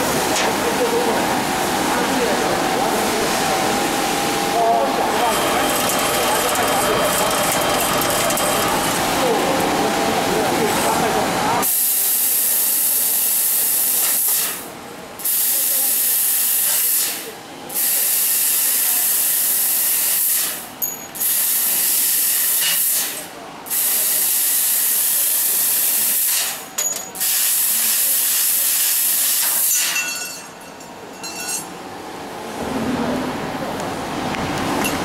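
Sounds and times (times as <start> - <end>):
laser cutter gas jet hissing: 11.6 - 14.6, 15.2 - 20.6, 21.2 - 26.6, 27.2 - 30.0.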